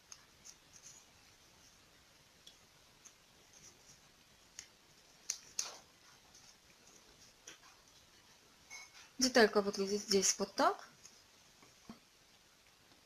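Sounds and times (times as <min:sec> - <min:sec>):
paper being folded: 0:03.0 - 0:07.4.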